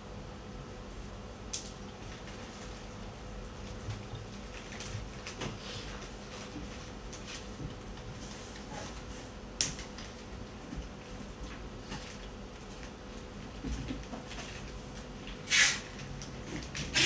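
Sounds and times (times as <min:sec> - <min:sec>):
faint hum: 0:00.0 - 0:17.0.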